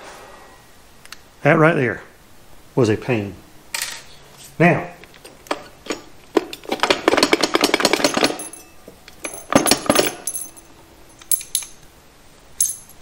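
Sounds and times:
metallic clicking rattle: 0:07.1 - 0:11.8.

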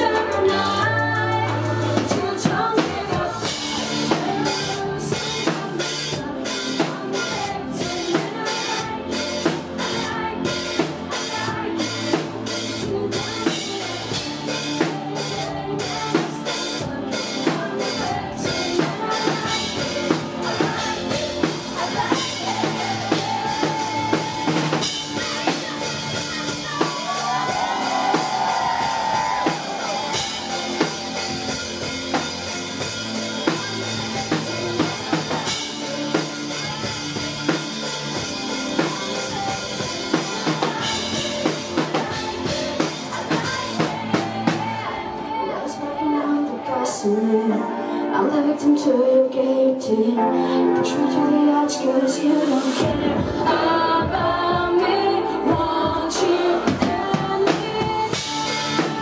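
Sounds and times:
bass guitar: 0:00.0 - 0:45.5, 0:52.8 - 0:59.0
drum kit steady beat: 0:02.0 - 0:45.0, 0:52.8 - 0:59.0
distorted electric guitar: 0:17.8 - 0:44.8.

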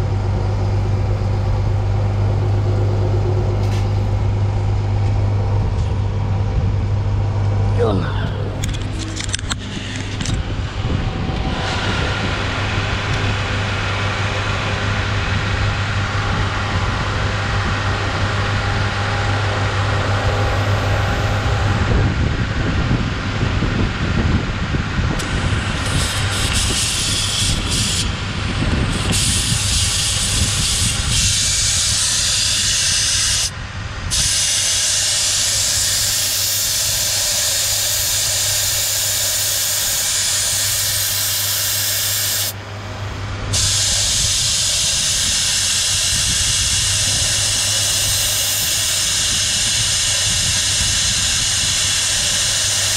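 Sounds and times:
steady low hum: 0:00.0 - 0:52.9
air hissing out of tyre: 0:25.2 - 0:28.2, 0:28.8 - 0:33.5, 0:34.1 - 0:42.6, 0:43.5 - 0:52.9.

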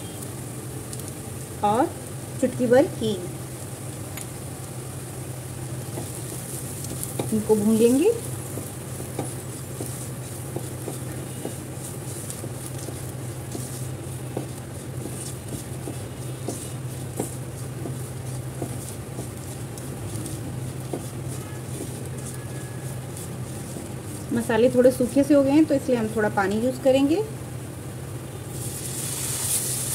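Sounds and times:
steady low hum: 0:00.0 - 0:28.6
spices frying in oil: 0:00.0 - 0:29.9
taps on pan: 0:05.9 - 0:07.4, 0:08.5 - 0:11.7
spatula scraping pan: 0:05.9 - 0:25.2.

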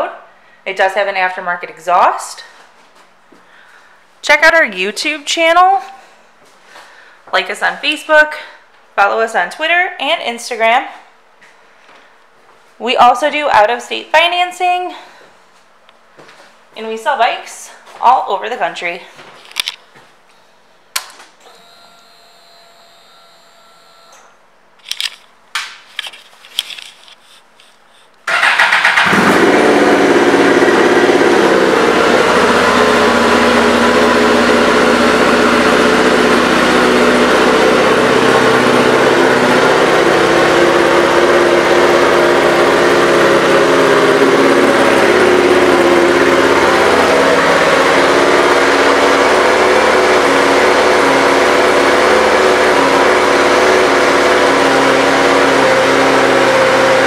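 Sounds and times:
motorcycle engine running: 0:28.3 - 0:57.0.

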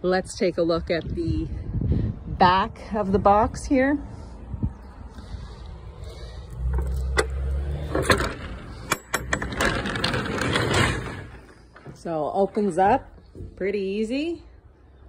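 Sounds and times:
roll-up door rattling: 0:06.7 - 0:13.0.

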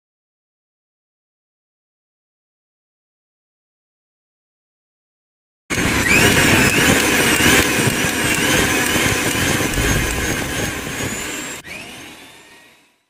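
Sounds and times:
wavering motor whine: 0:05.7 - 0:13.0.

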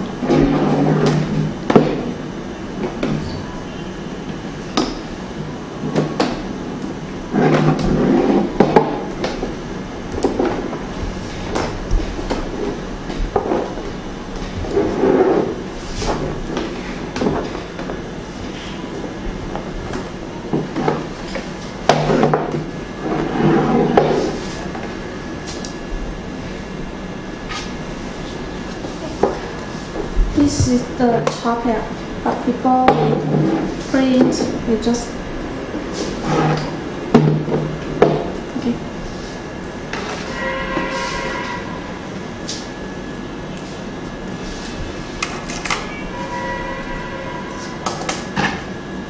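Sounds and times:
panels rubbing and sliding: 0:00.2 - 0:02.2, 0:05.8 - 0:17.8, 0:19.6 - 0:25.7, 0:32.6 - 0:42.6.

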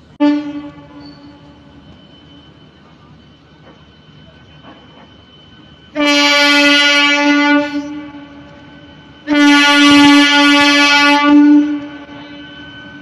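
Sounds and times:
train horn blasts: 0:00.1 - 0:02.7, 0:05.9 - 0:13.0.

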